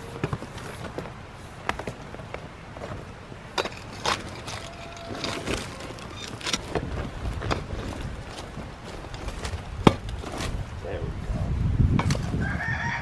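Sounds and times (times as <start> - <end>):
rake scraping through ash: 3.6 - 10.8.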